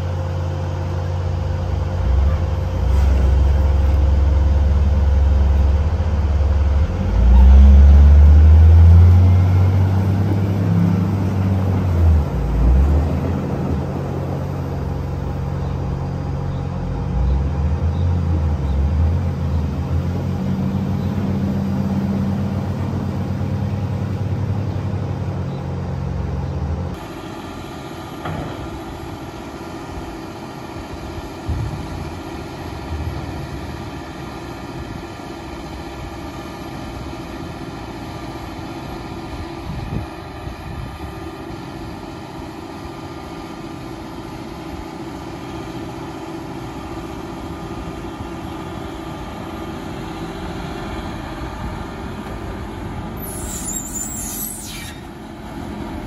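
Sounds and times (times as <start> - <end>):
wheel loader diesel engine: 0.0 - 56.0
high-pitched hiss: 53.2 - 55.1.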